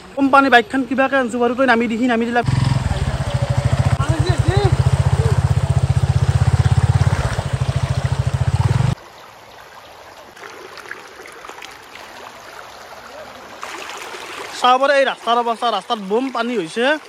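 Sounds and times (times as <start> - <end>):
motorcycle engine running: 2.4 - 9.0
floodwater flowing and trickling: 2.4 - 17.0.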